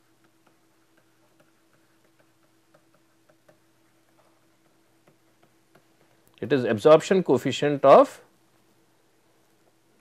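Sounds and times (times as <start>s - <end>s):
faint steady hum: 0.0s - 10.0s
stylus tapping on screen: 0.1s - 6.3s.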